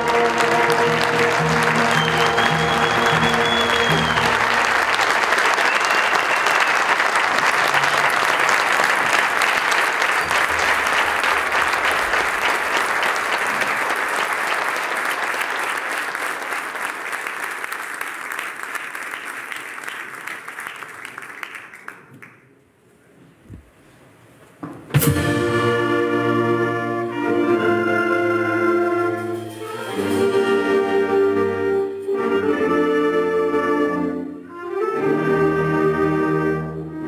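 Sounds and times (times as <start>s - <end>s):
audience applauding: 0.0s - 22.6s.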